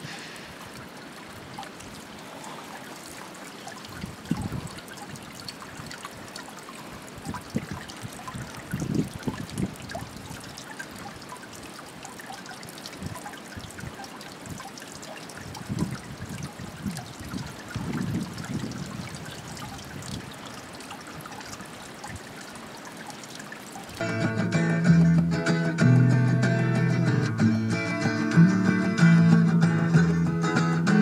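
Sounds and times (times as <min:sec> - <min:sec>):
fountain water splashing into trough: 0:00.0 - 0:24.1.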